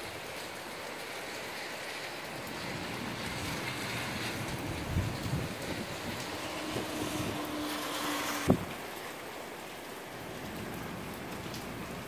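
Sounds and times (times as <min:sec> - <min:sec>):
steady rain hissing: 0:00.0 - 0:12.0
gusty wind: 0:02.0 - 0:09.5.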